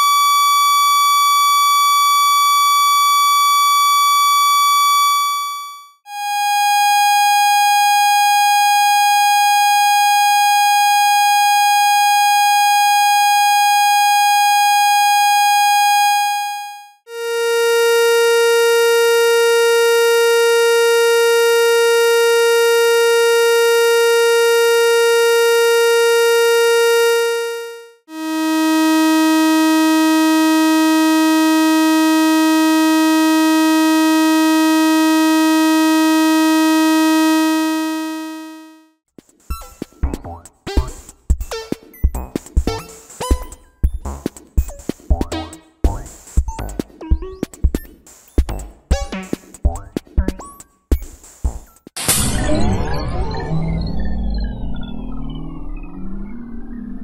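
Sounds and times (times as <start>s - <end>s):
buzzy square-wave tones: 4.6s - 38.9s, 39.5s - 50.6s.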